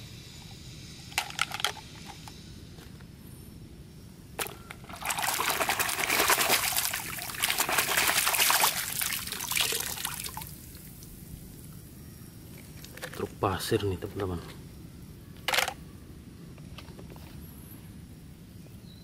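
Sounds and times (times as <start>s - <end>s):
water splashing and sloshing: 4.4s - 11.1s.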